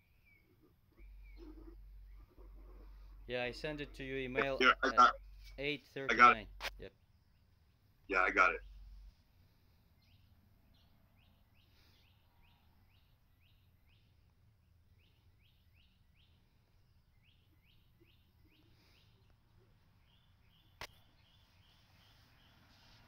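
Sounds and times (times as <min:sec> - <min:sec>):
faint low hum: 0:00.0 - 0:11.6.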